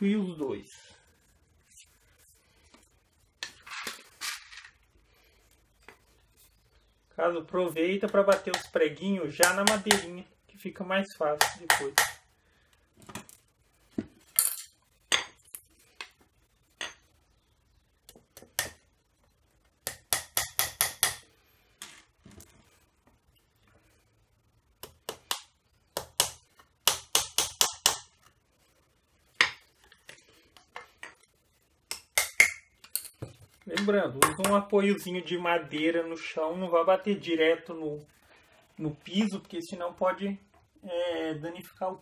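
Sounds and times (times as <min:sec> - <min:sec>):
hammer tapping nails into wood: 0:09.4 - 0:10.1, 0:11.4 - 0:12.2, 0:19.9 - 0:21.2, 0:24.8 - 0:28.1.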